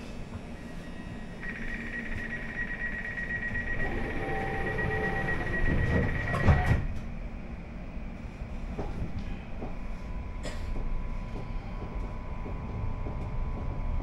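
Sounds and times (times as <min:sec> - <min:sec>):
rapid high-pitched beeping: 0:01.4 - 0:06.5
train doors thudding shut: 0:05.4 - 0:07.1.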